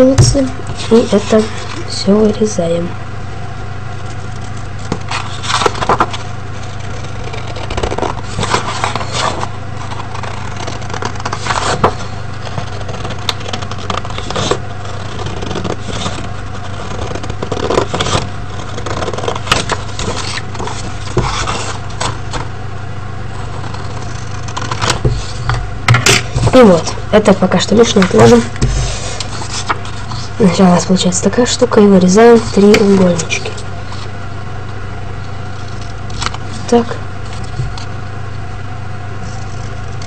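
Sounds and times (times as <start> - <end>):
steady low hum: 0.0 - 40.0
paper rustling: 0.4 - 2.0, 4.0 - 22.5, 27.7 - 30.6, 32.2 - 34.1.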